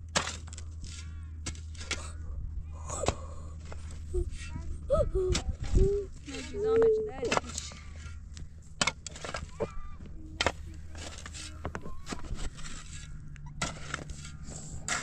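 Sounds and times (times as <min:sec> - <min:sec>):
shovel chopping into stony dirt: 0:00.1 - 0:02.2, 0:06.3 - 0:08.2, 0:08.8 - 0:09.8, 0:10.4 - 0:15.0.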